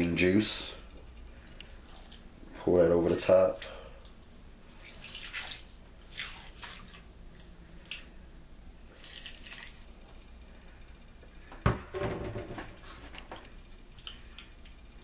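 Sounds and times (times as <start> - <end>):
juice trickling and splattering: 3.0 - 8.2, 8.9 - 10.2.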